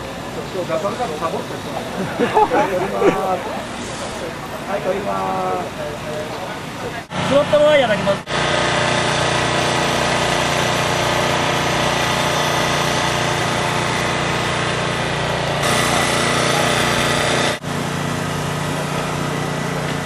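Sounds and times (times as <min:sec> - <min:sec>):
kart engine buzzing: 0:07.1 - 0:20.0.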